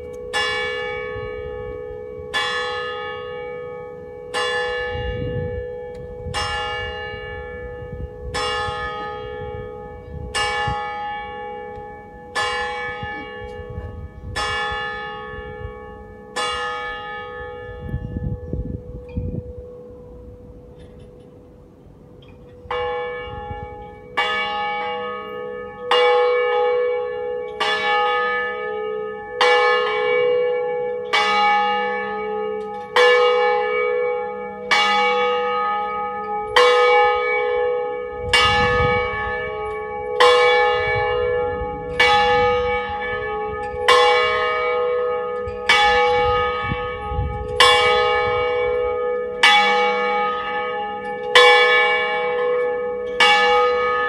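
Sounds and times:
church bell ringing: 0.0 - 54.0.

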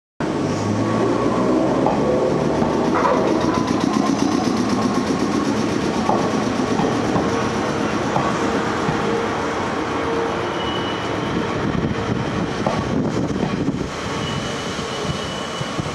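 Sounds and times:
electric train motor hum: 1.3 - 10.4
train wheels clacking: 1.8 - 9.6, 12.5 - 15.9.

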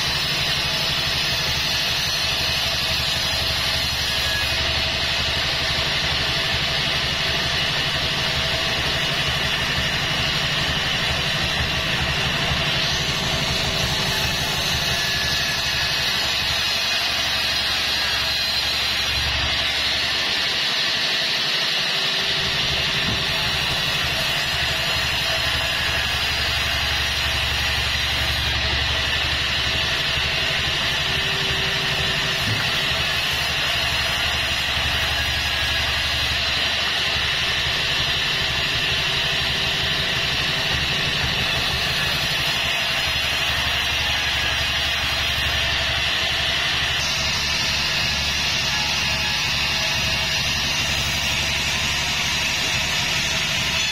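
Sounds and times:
saw blade hissing through log: 0.0 - 4.9, 12.3 - 29.4, 41.4 - 53.9
band sawmill humming: 0.0 - 20.4, 22.2 - 53.9.

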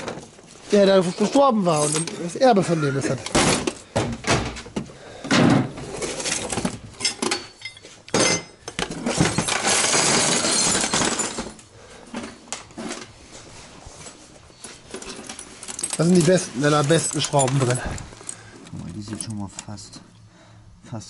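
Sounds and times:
metal screws clinking and rattling: 1.6 - 2.7, 6.0 - 11.6, 14.5 - 19.7.

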